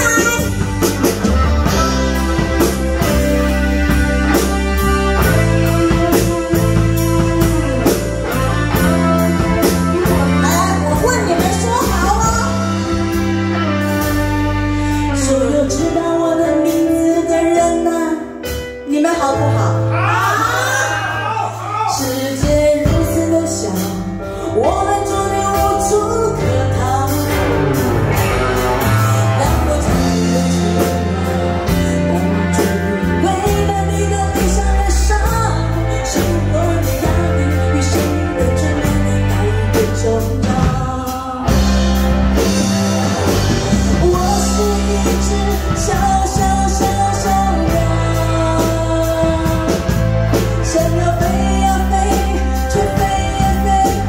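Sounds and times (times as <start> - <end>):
woman singing pop-rock song: 0.0 - 21.0, 21.9 - 54.0
live band playing: 0.0 - 54.0.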